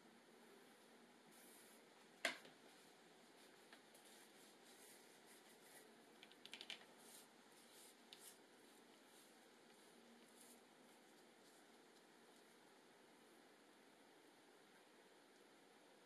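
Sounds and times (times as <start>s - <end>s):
small clicks and ticks: 6.2s - 6.9s.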